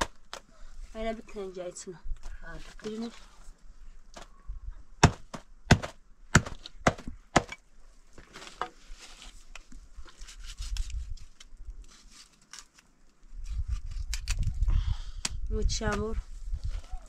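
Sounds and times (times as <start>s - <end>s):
hatchet chopping meat: 5.0s - 7.5s.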